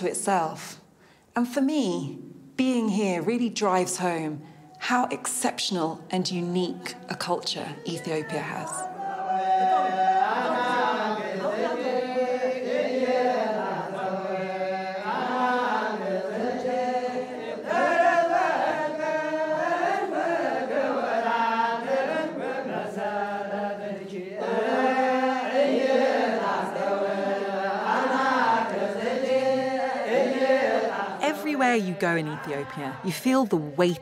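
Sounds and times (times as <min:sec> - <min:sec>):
men chanting together: 0:08.6 - 0:34.0.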